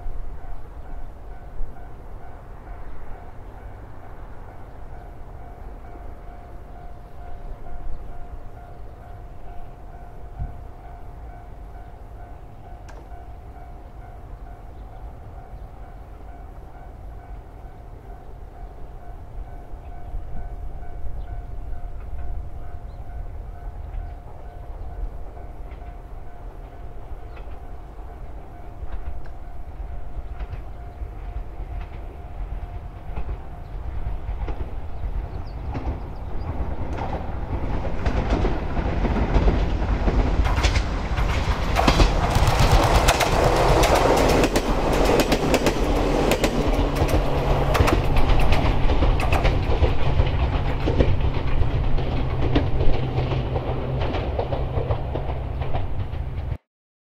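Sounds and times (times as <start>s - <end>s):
electric train approaching: 0.0s - 56.6s
wheels clicking over rail joints: 25.6s - 56.6s.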